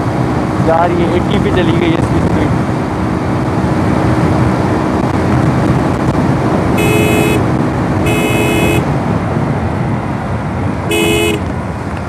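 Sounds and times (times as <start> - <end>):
motorcycle engine: 0.0 - 12.0
wind rushing over microphone: 0.0 - 12.0
motorcycle horn beeps: 6.8 - 8.9, 10.9 - 11.5.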